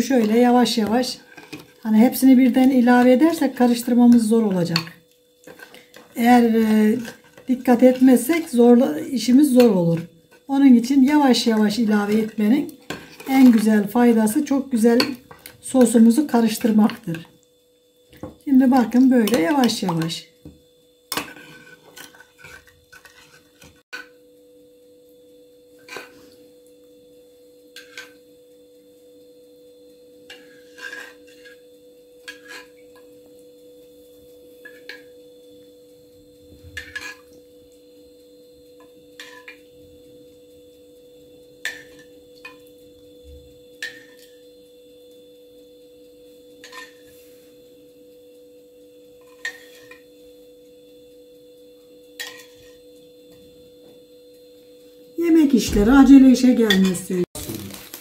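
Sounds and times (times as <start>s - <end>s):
faint steady hum: 0.0s - 58.0s
spoon tapping metal baking tray: 19.2s - 20.2s.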